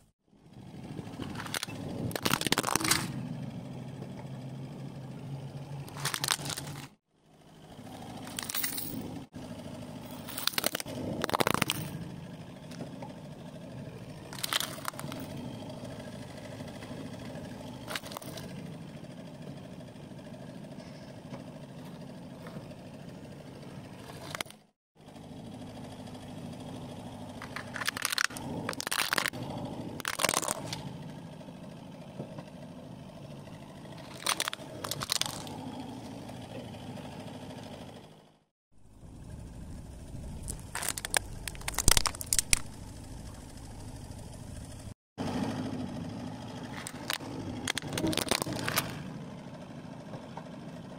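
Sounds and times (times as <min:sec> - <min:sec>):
car engine idling: 0:00.0 - 0:50.9
plastic toys cracking under tyre: 0:01.2 - 0:03.2, 0:05.9 - 0:07.0, 0:10.4 - 0:12.0, 0:14.3 - 0:15.2, 0:17.8 - 0:18.4, 0:27.4 - 0:30.9, 0:34.0 - 0:35.6, 0:40.4 - 0:42.8, 0:46.7 - 0:49.0.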